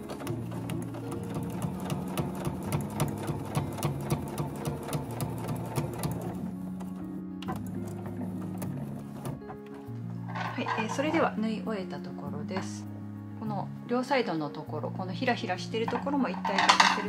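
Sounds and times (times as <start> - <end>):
sewing machine stitching: 0.0 - 9.6
soft background music: 0.0 - 17.0.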